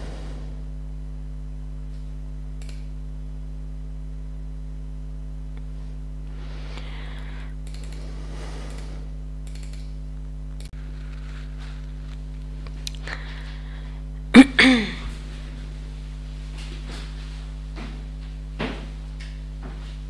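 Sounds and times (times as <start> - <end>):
electrical mains hum: 0.0 - 20.0
keyboard and mouse clicks: 7.7 - 8.0, 9.4 - 9.9.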